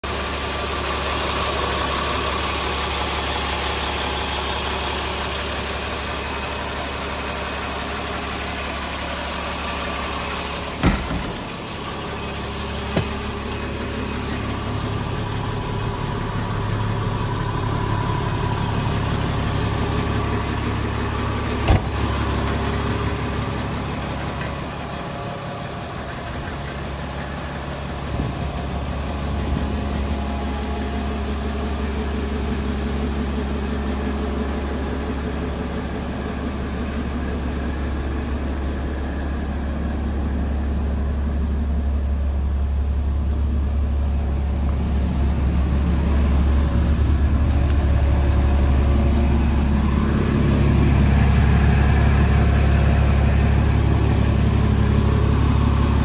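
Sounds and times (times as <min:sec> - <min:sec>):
diesel engine idling: 0:00.0 - 0:56.0.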